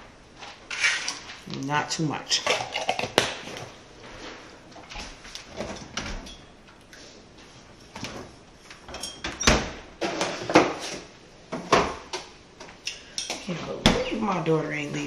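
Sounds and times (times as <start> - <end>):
items handled in door shelves: 0.0 - 15.0
refrigerator door opening: 9.2 - 9.8.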